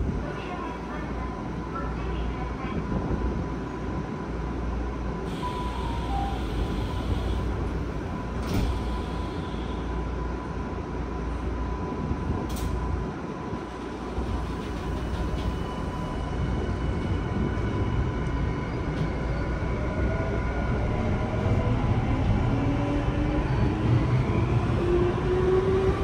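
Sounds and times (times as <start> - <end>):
train equipment hum: 0.0 - 26.0
train doors sliding shut: 5.3 - 9.7, 12.4 - 12.9, 13.6 - 16.2.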